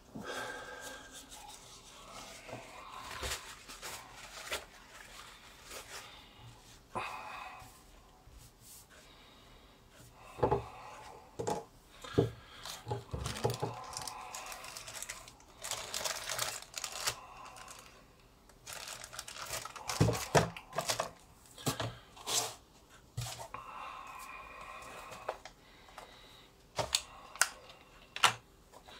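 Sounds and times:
paper towels rustling: 0:01.0 - 0:06.3, 0:13.1 - 0:17.9, 0:18.6 - 0:21.2.

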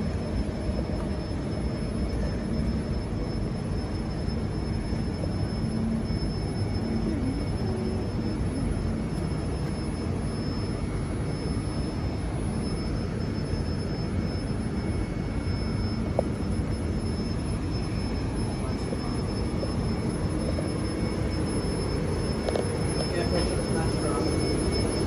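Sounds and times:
faint high whine: 0:00.0 - 0:25.0.

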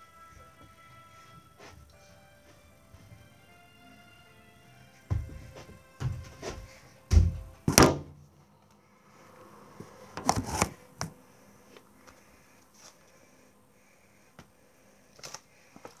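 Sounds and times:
football thumps on carpet: 0:05.1 - 0:08.1
book pages rustling: 0:10.2 - 0:10.8.

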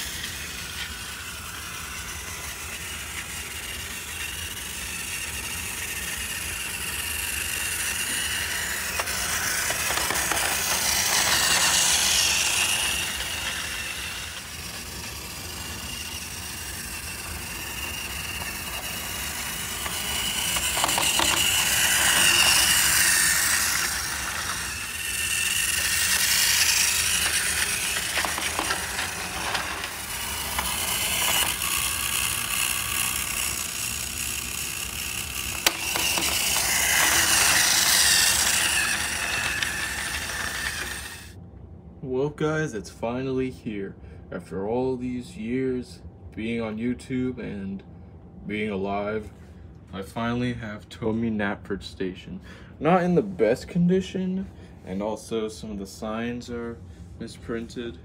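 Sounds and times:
wheels rattling over track joints: 0:00.0 - 0:41.3
toy train motor whine: 0:00.0 - 0:41.4.

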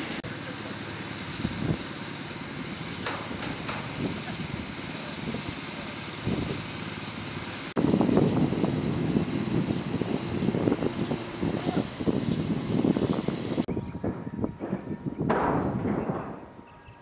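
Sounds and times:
construction site background noise: 0:00.0 - 0:17.0
sharp knocks: 0:14.1 - 0:16.5.

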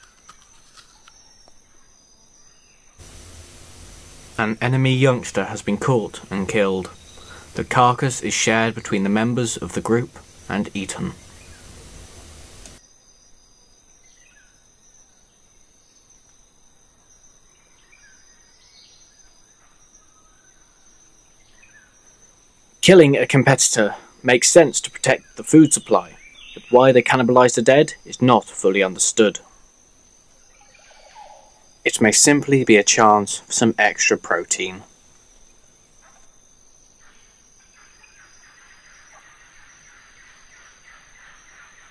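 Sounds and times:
low steady hiss: 0:01.2 - 0:41.9
bird chirps: 0:03.0 - 0:12.8
high insect drone: 0:03.0 - 0:41.9
faint animal calls: 0:30.5 - 0:31.6.

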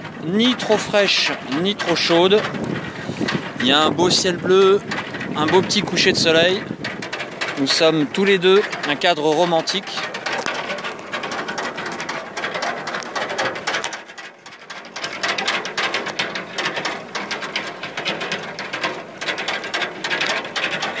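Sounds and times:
pedal boat paddle-wheel clattering: 0:00.0 - 0:21.0.

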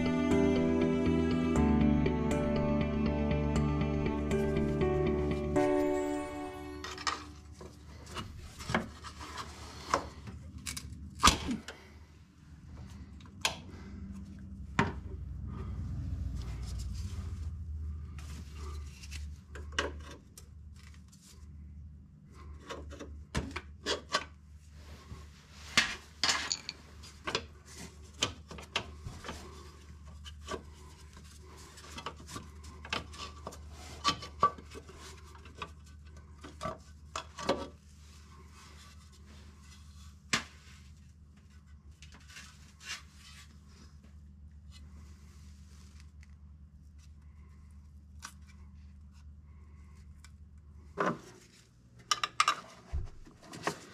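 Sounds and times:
steady low hum: 0:10.2 - 0:19.7
metal clinks and knocks of tools: 0:26.2 - 0:26.8.

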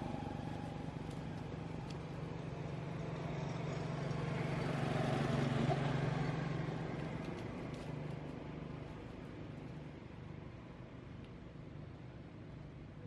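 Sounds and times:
vehicle engine passing: 0:00.0 - 0:09.1.

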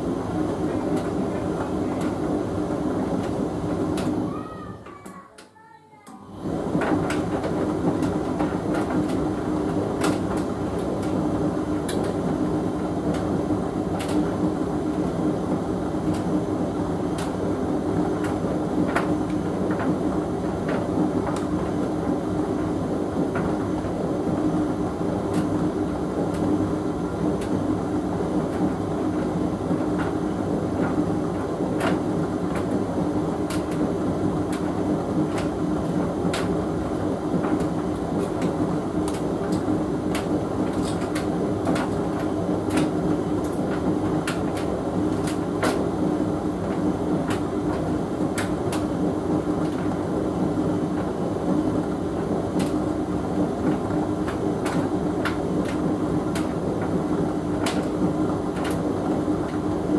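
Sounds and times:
tumble dryer hum: 0:00.0 - 0:05.0, 0:06.1 - 0:59.9
clothes tumbling clicks and taps: 0:53.6 - 0:57.0, 0:57.6 - 0:58.8.

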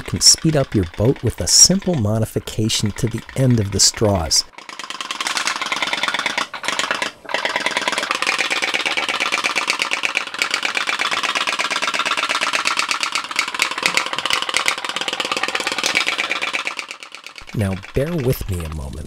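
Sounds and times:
toy steam boat engine putt-putt: 0:00.0 - 0:19.0.

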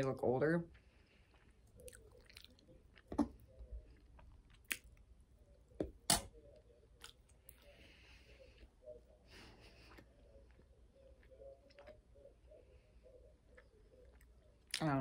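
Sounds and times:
wet chewing: 0:00.7 - 0:15.0.

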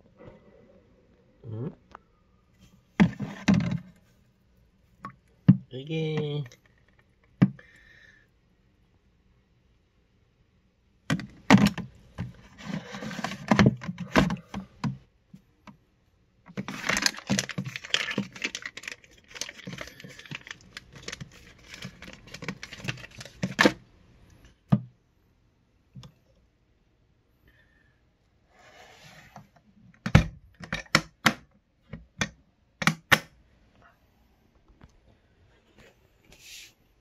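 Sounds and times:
plastic crinkling: 0:16.5 - 0:23.8.

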